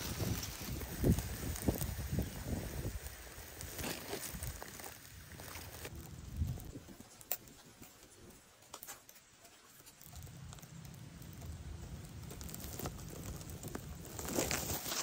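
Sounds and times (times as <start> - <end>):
grass rustling: 0.0 - 15.0.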